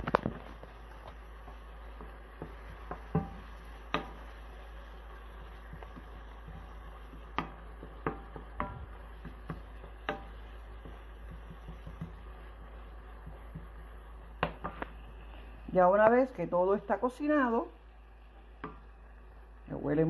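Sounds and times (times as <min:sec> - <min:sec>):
wooden spoon knocking on pan: 0:00.0 - 0:04.3, 0:05.4 - 0:13.8, 0:14.4 - 0:14.9, 0:18.6 - 0:18.9
low steady hum: 0:00.0 - 0:20.0.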